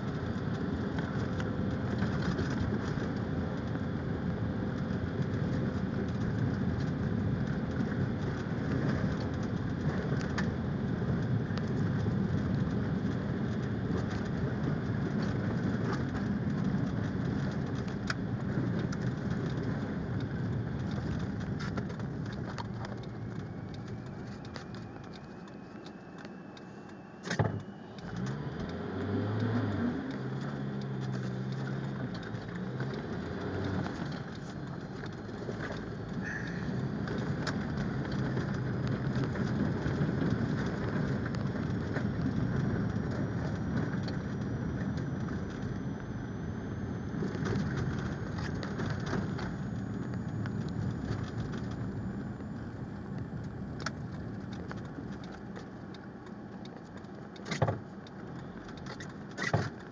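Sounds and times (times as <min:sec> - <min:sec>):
car engine running: 0:00.0 - 0:59.9
tyre and road noise: 0:00.0 - 0:59.9.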